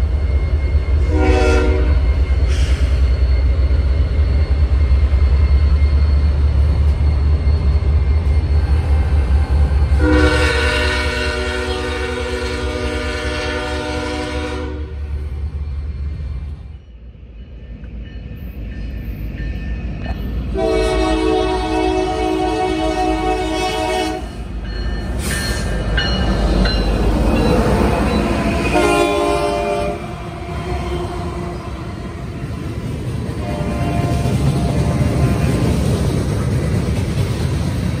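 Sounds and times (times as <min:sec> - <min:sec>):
diesel locomotive rumble: 0:00.0 - 0:38.0
locomotive air horn: 0:01.0 - 0:02.0, 0:10.0 - 0:15.0, 0:20.5 - 0:24.3, 0:28.4 - 0:31.9, 0:33.4 - 0:34.4.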